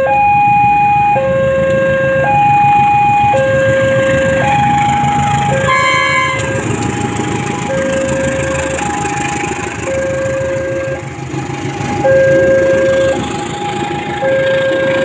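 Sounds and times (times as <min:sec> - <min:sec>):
diesel train rumbling past: 0:00.0 - 0:15.0
two-tone crossing alarm: 0:00.0 - 0:15.0
train horn tone: 0:05.5 - 0:06.8.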